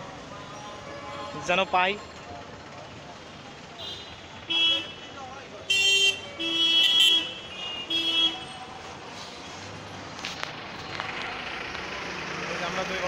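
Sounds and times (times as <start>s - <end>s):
street traffic noise: 0.0s - 13.0s
vehicle horn honking: 0.5s - 1.8s, 3.8s - 5.1s, 5.7s - 8.6s.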